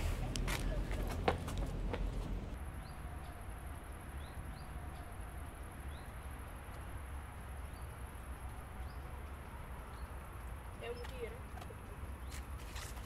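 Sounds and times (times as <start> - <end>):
bird chirping: 2.7 - 6.8, 7.5 - 12.6.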